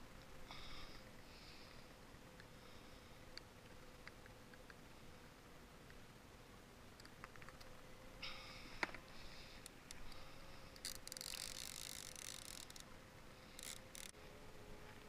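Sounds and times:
faint hum: 0:00.0 - 0:15.0
fishing reel clicks: 0:10.8 - 0:12.9, 0:13.5 - 0:14.1.

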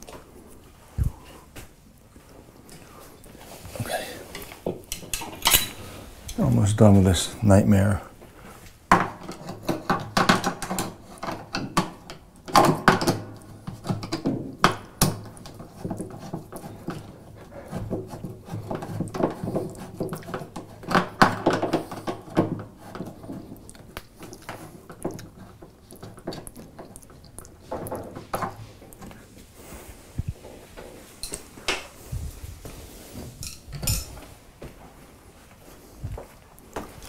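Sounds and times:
metal tools clinking: 0:04.4 - 0:06.5, 0:33.4 - 0:34.2.

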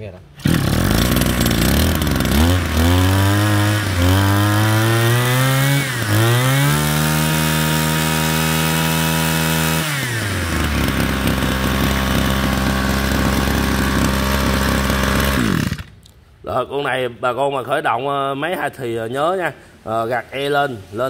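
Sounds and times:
brush cutter engine revving: 0:00.4 - 0:16.1.

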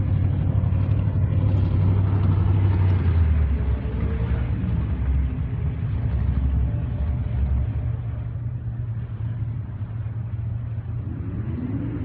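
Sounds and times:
low rumble of car engines: 0:00.0 - 0:12.0.

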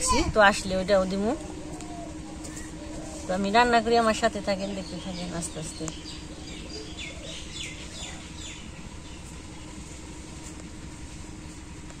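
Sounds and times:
low outdoor background noise: 0:00.0 - 0:12.0
bird chirping: 0:01.0 - 0:09.9.

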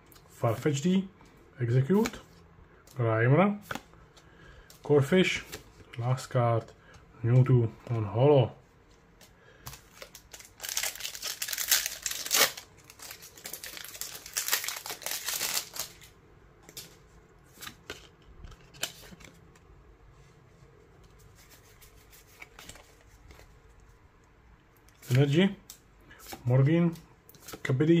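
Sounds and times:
foil wrapper crinkling and tearing: 0:09.7 - 0:16.1.

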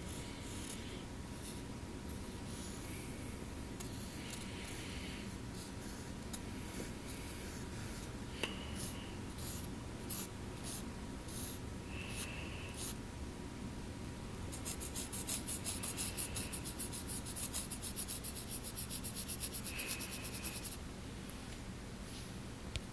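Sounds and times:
pencil scratching on paper: 0:00.0 - 0:01.6, 0:03.8 - 0:08.1, 0:08.8 - 0:13.0, 0:14.5 - 0:20.8
low background hum: 0:00.0 - 0:22.9.

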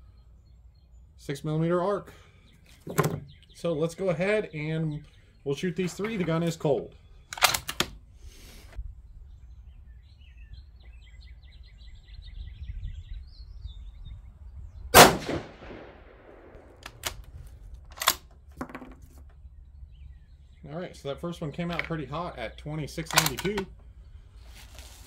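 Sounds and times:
birds chirping faintly: 0:00.0 - 0:25.0
rifle shot with echo: 0:14.9 - 0:16.9.

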